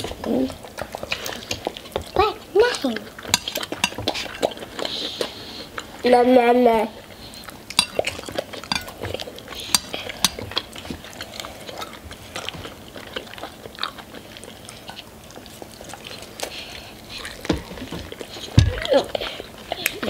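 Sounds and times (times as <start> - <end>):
chewing and biting: 0.0 - 6.0, 7.0 - 20.0
cutlery clicking against bowls: 3.3 - 4.5, 7.7 - 10.6.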